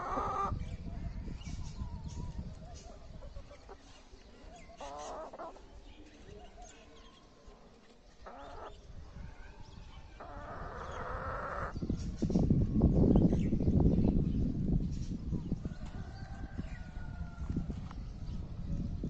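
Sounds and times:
chickens clucking: 0.0s - 0.7s, 1.5s - 5.9s, 8.2s - 9.0s, 10.2s - 12.3s.

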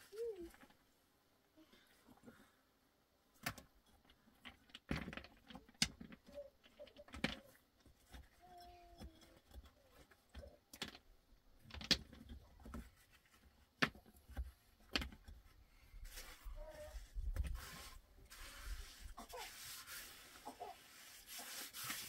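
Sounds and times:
knocks and scrapes on concrete: 16.0s - 22.0s.

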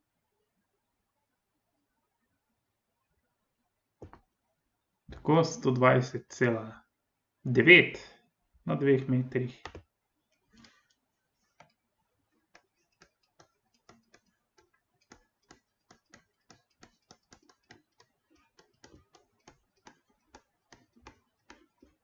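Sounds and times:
stylus tapping on tablet screen: 4.0s - 4.3s, 9.5s - 22.0s.

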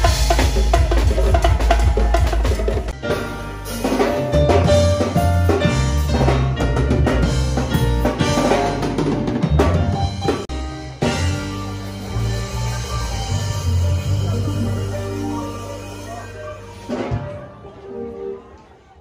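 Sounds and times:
hand drums: 0.0s - 3.0s
drum kit with cymbals: 0.0s - 17.4s
bass line: 0.0s - 17.5s
electronic keyboard chords: 0.0s - 18.4s.

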